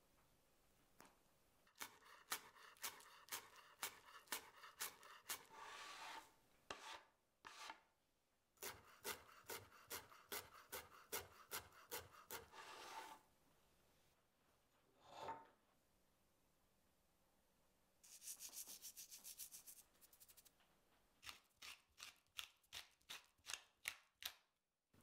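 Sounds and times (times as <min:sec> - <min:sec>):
knife scraping board: 0:01.8 - 0:07.9, 0:08.6 - 0:13.2.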